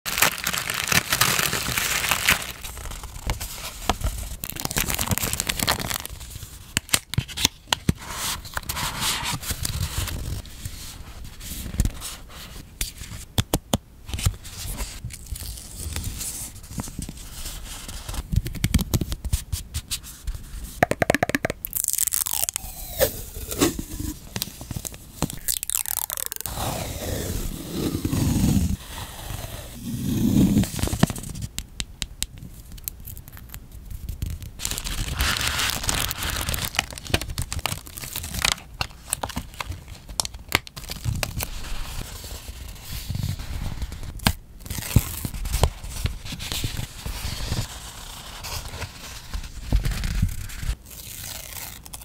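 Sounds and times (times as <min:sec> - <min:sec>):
tissue paper crinkling and tearing: 0:00.1 - 0:07.5, 0:21.8 - 0:29.5, 0:34.2 - 0:52.0
playing cards tapping and sliding: 0:20.8 - 0:21.6.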